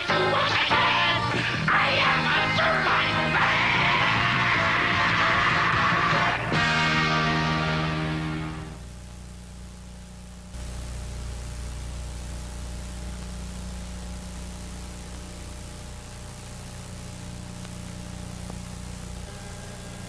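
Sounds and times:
constant hiss: 0.0 - 20.0
low electrical hum: 0.0 - 20.0.

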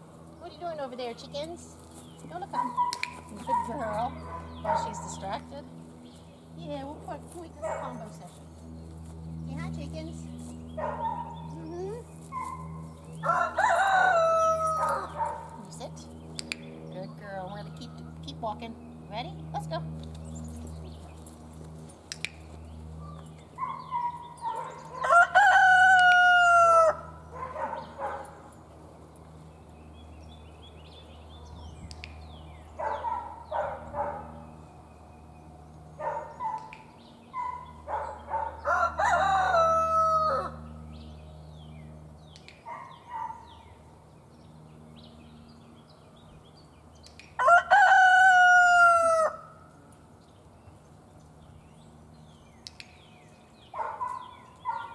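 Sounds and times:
rooster crowing: 13.2 - 15.2, 24.4 - 27.2, 38.5 - 40.7, 47.4 - 49.6.

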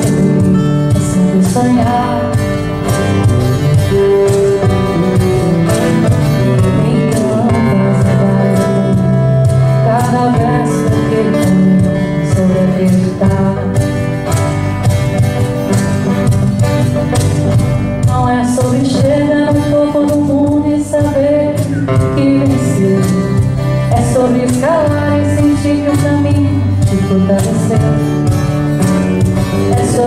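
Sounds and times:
acoustic band playing ballad: 0.0 - 30.0.

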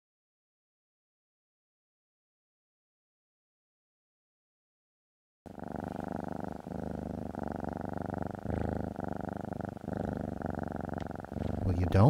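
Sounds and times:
cat purring: 5.5 - 12.0.

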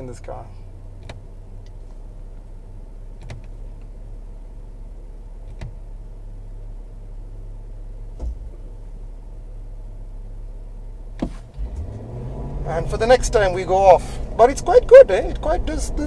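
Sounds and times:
engine drone inside car cab: 0.0 - 16.0
low thump: 8.1 - 8.6.

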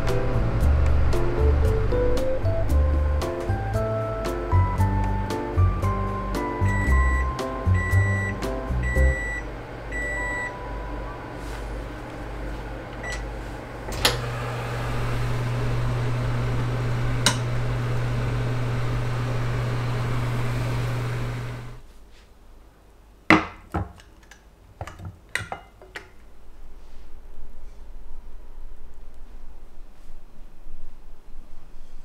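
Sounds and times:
oven electric hum: 0.0 - 21.8.

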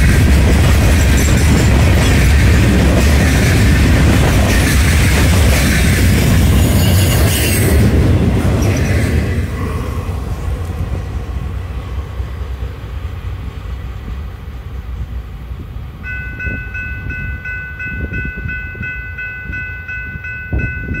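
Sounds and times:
freight train rumbling: 0.0 - 21.0
crossing bell dinging: 0.4 - 8.0, 16.0 - 21.0.

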